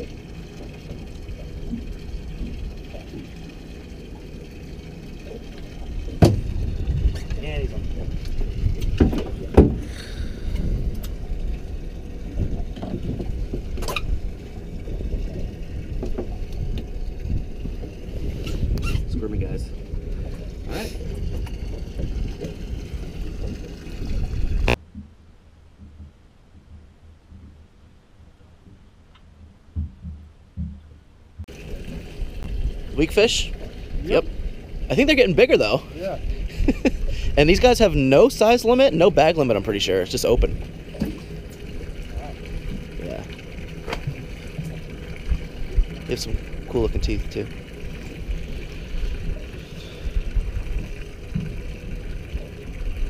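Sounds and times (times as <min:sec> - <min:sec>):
low hum: 0:00.0 - 0:53.0
steady low rumble: 0:00.0 - 0:53.0
water sloshing around boat: 0:00.0 - 0:53.0
faint soft thumps: 0:25.8 - 0:31.5.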